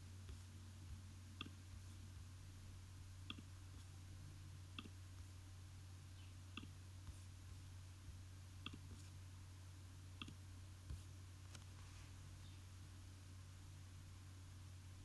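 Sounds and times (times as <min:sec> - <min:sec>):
faint low hum: 0:00.0 - 0:15.0
soft clicks: 0:01.4 - 0:01.8, 0:03.2 - 0:03.9, 0:04.7 - 0:05.3, 0:06.2 - 0:07.2, 0:08.6 - 0:09.1, 0:10.2 - 0:11.9.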